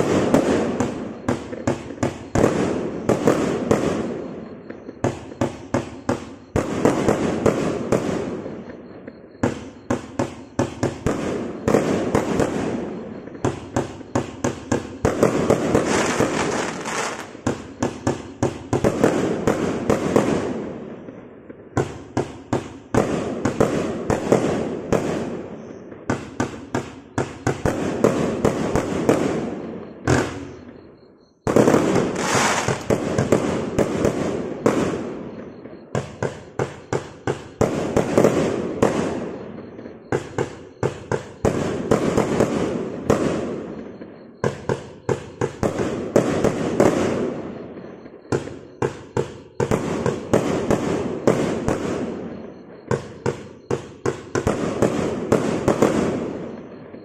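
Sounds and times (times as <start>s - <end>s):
firework launch reports: 0.0s - 20.6s, 27.2s - 43.5s
firework shots hissing: 15.2s - 20.5s, 31.6s - 34.9s.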